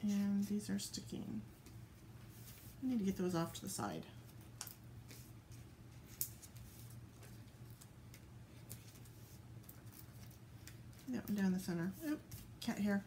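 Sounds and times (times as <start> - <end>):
low steady hum: 0.0 - 13.0
paper rustling and ticking: 4.6 - 11.5.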